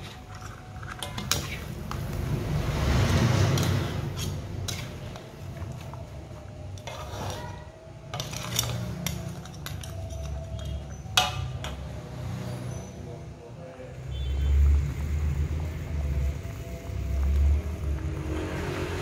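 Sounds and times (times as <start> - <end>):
spatula scraping a metal wok: 0.0 - 6.0, 6.7 - 11.8.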